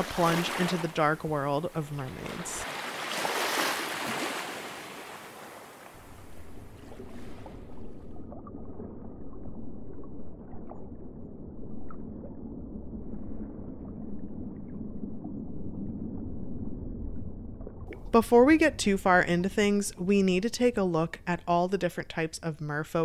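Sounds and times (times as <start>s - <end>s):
splash: 0.0s - 1.0s, 2.1s - 8.2s
muffled underwater rumble: 6.0s - 23.0s
bubbling blips: 6.2s - 23.0s.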